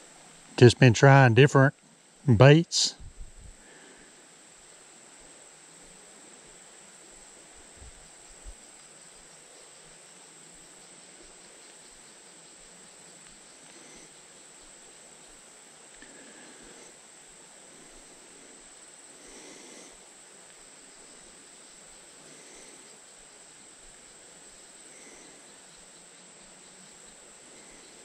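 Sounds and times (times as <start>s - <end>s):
insect chorus drone: 0.0s - 28.0s.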